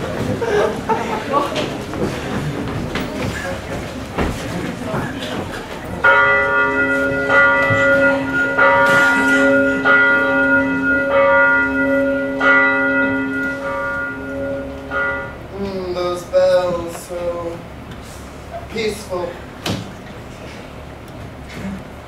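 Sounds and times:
steady hum: 0.0 - 22.0
church bells ringing: 5.9 - 16.3.

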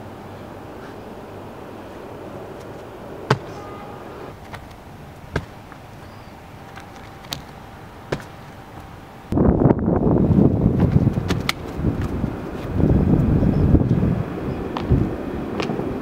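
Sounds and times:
outdoor background noise: 0.0 - 16.0
feet landing on concrete: 3.3 - 3.7, 4.3 - 9.0, 10.7 - 11.8.

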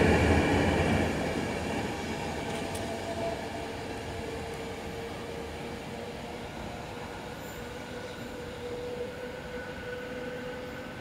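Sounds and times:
train rumble: 0.0 - 11.0.

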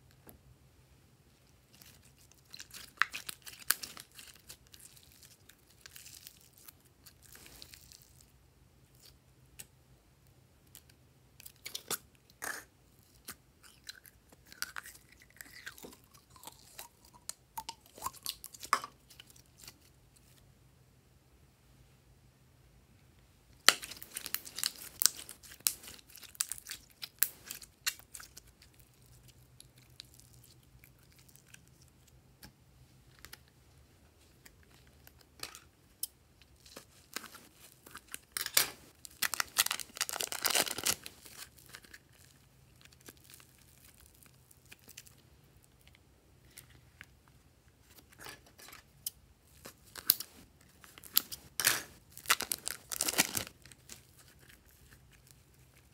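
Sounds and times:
plastic wrapping crinkling: 23.6 - 28.4, 36.6 - 45.2, 49.5 - 55.9.

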